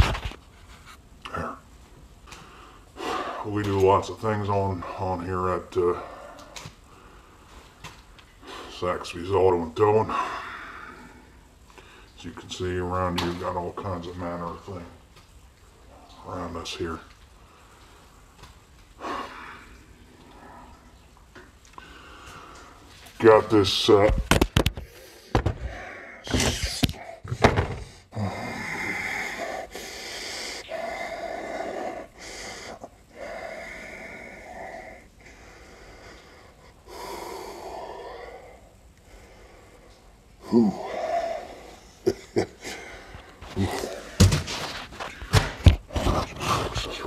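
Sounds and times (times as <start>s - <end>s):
man exhaling and gasping: 24.8s - 44.4s.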